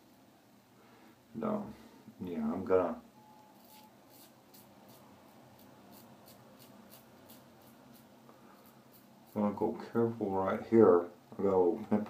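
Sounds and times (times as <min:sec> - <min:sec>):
razor scraping stubble: 0:03.6 - 0:09.7.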